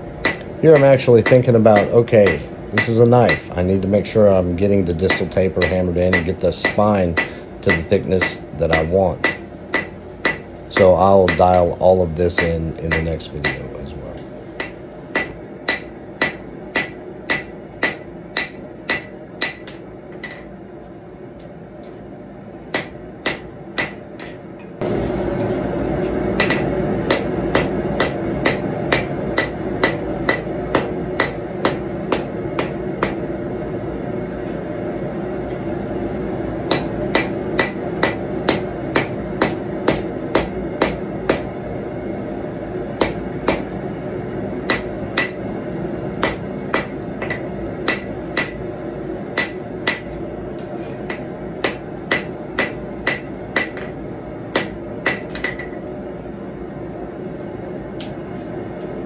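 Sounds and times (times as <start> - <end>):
steady background roar: 0.0 - 19.6
hammer striking metal on anvil: 0.2 - 3.8, 4.6 - 20.5, 22.7 - 24.7, 26.4 - 33.3, 36.7 - 41.5, 43.0 - 43.7, 44.6 - 45.5, 46.2 - 48.6, 49.4 - 50.2, 51.1 - 55.8.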